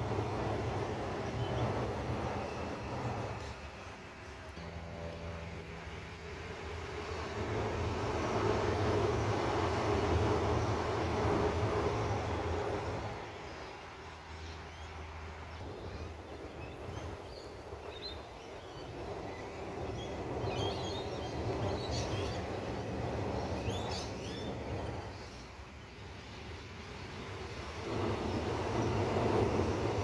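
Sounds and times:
electric train rumbling over bridge: 0.0s - 30.0s
birds chirping: 13.3s - 27.3s.

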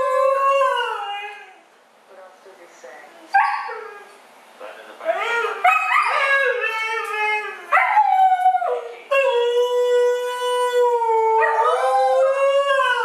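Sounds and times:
husky yowling and howling: 0.0s - 1.6s, 5.1s - 13.0s.

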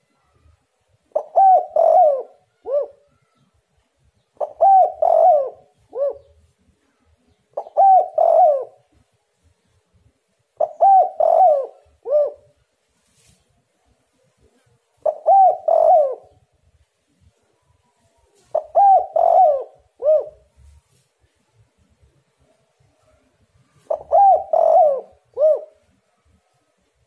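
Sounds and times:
dove cooing: 1.1s - 3.2s, 4.4s - 6.4s, 7.5s - 8.9s, 10.6s - 12.6s, 14.9s - 16.5s, 18.4s - 20.7s, 23.6s - 26.0s.

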